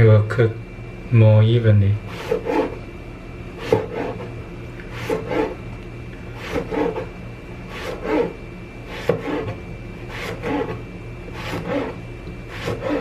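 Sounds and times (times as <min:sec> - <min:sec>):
cleaver slicing eggplant: 0:02.1 - 0:02.8, 0:03.6 - 0:04.3, 0:06.4 - 0:07.1, 0:07.7 - 0:13.0.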